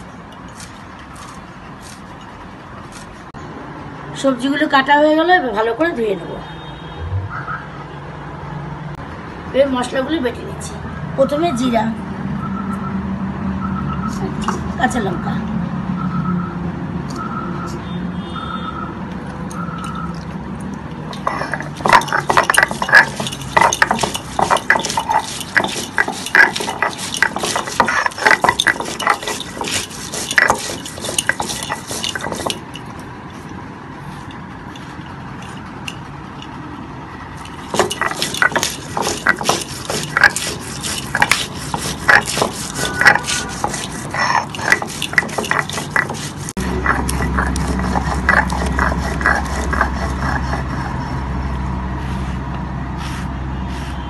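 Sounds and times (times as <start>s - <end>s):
stone grinding on stone: 21.0s - 33.5s, 37.2s - 51.3s.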